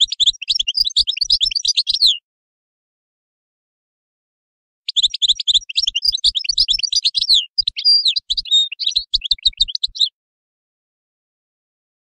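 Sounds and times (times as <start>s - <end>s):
goldfinch singing: 0.0s - 2.2s, 4.9s - 10.1s.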